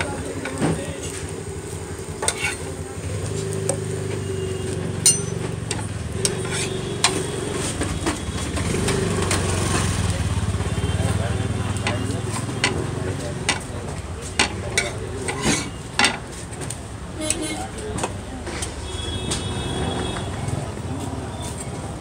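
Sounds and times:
metal spatula scraping frying pan: 0:02.2 - 0:02.8, 0:05.0 - 0:08.0, 0:14.3 - 0:16.4, 0:17.2 - 0:18.1.

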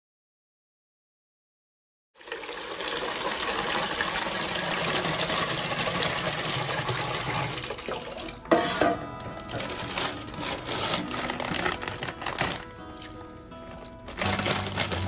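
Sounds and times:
water pouring into metal pot: 0:02.2 - 0:12.5.

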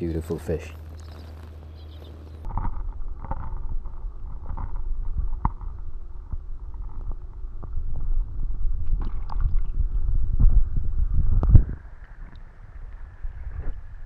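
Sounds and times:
underwater stream rumble: 0:00.8 - 0:14.0
underwater knocks and clicks: 0:02.5 - 0:08.2, 0:08.8 - 0:10.6.

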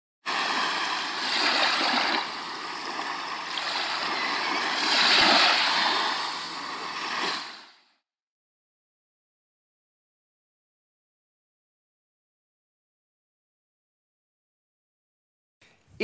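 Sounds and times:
sea waves washing: 0:00.2 - 0:07.9.

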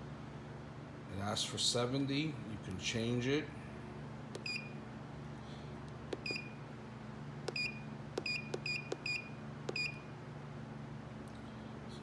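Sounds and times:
short high keypad beeps: 0:04.4 - 0:04.8, 0:06.2 - 0:06.6, 0:07.5 - 0:10.1.

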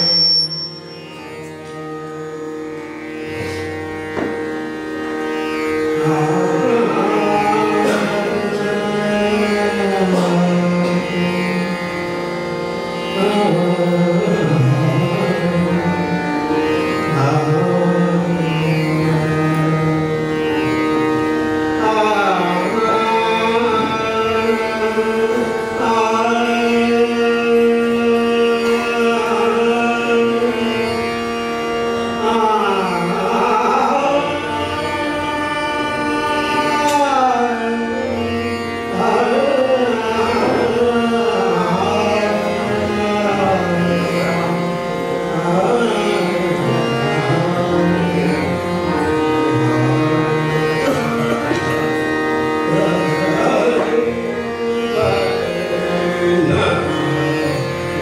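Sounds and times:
tabla: 0:00.0 - 0:58.0
tanpura and harmonium drone: 0:00.0 - 0:58.0
man singing classical vocals: 0:05.8 - 0:58.0.

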